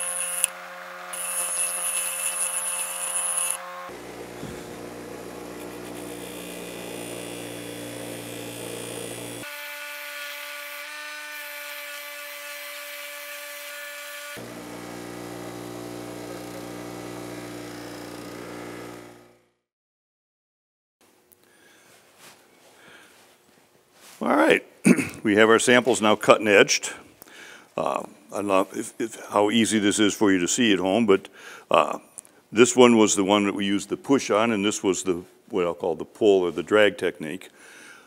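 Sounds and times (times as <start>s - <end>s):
bench grinder motor hum: 0.0s - 19.6s.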